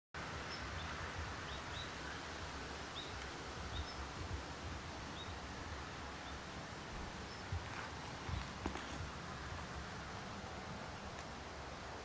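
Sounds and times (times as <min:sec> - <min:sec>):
steady hiss and low rumble: 0:00.2 - 0:12.0
bird chirping: 0:00.4 - 0:04.1, 0:05.1 - 0:05.5, 0:06.2 - 0:06.5, 0:07.2 - 0:09.0.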